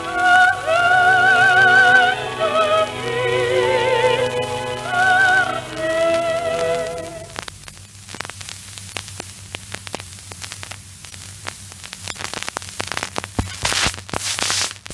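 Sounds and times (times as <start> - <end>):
wavering sung opera note: 0.0 - 7.4
record surface hiss and hum: 0.0 - 14.9
record crackles and clicks: 4.2 - 14.9.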